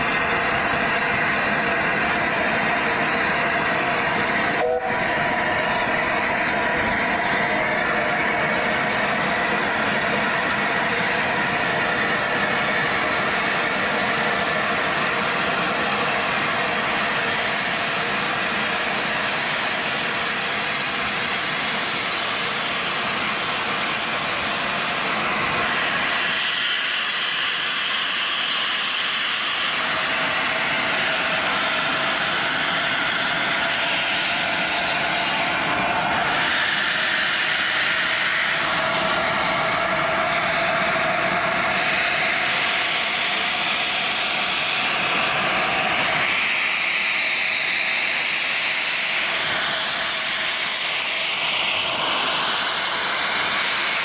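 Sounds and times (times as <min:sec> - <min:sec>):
steam locomotive hissing steam: 0:00.0 - 0:54.0.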